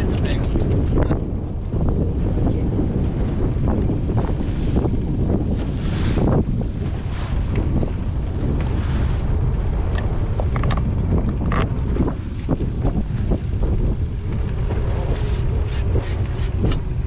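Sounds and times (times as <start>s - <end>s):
steady low rumble: 0.0s - 17.0s
wind buffeting microphone: 0.0s - 17.0s.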